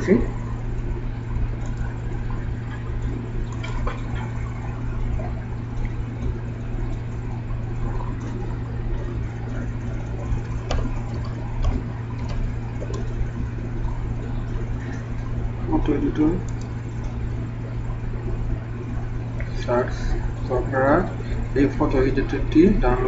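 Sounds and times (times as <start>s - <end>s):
faint clicks: 16.4s - 17.2s.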